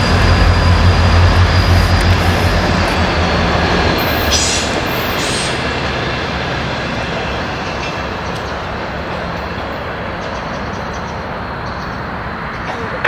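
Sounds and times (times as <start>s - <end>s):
high-pitched squeals: 0.0s - 6.0s
train engine drone: 0.0s - 13.0s
train wheels on rails: 0.0s - 13.0s.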